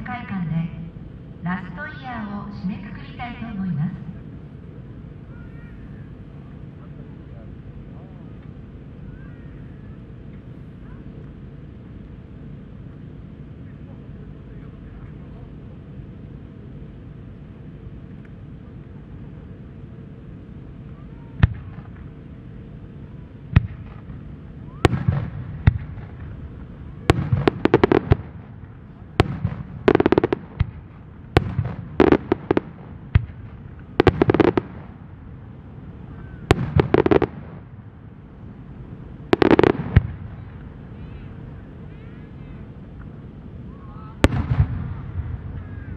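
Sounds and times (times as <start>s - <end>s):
firework bangs: 21.4s - 22.2s, 23.5s - 35.4s, 36.0s - 38.0s, 39.2s - 41.3s, 44.2s - 45.9s
firework crackling pops: 23.5s - 35.0s, 36.2s - 37.8s, 39.3s - 40.7s, 44.2s - 45.8s.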